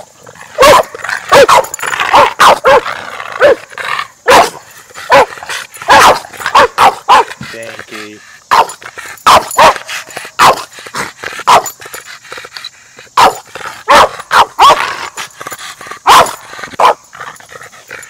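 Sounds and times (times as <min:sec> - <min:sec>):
dog barking: 0:00.6 - 0:03.7, 0:04.3 - 0:07.4, 0:08.5 - 0:10.7, 0:11.4 - 0:11.8, 0:13.2 - 0:14.9, 0:16.0 - 0:17.0.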